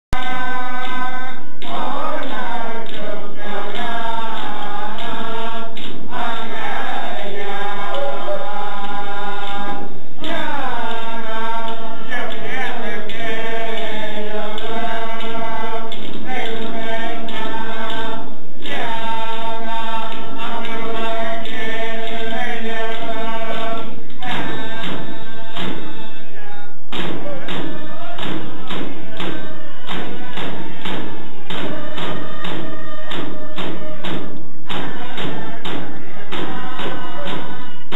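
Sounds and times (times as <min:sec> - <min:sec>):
chorus singing in unison: 0:00.2 - 0:37.9.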